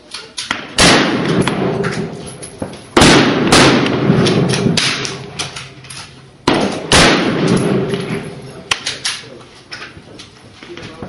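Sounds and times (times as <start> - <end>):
loud rifle shots with echo: 0.5 - 5.8, 6.4 - 8.8
faint distant gunshots: 0.6 - 2.2, 2.9 - 5.3, 6.4 - 8.0.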